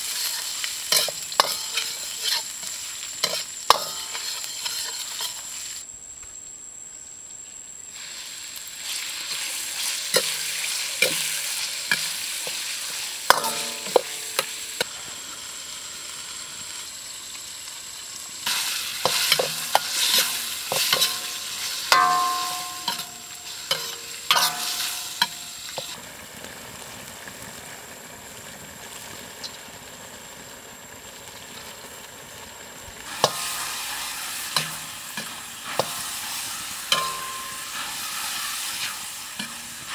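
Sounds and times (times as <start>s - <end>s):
food sizzling in a wok: 0.0s - 6.0s, 7.4s - 39.9s
metal ladle clanking on wok: 13.3s - 14.5s, 19.1s - 25.4s, 36.9s - 37.9s.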